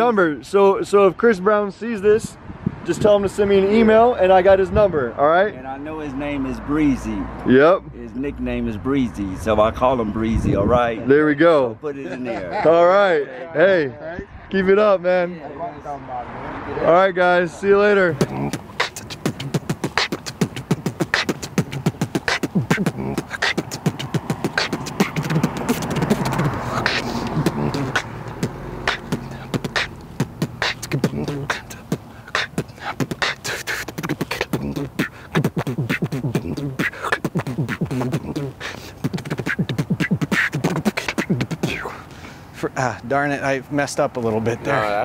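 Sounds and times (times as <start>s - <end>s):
hummed notes: 18.1s - 41.8s
man beatboxing: 18.1s - 42.1s.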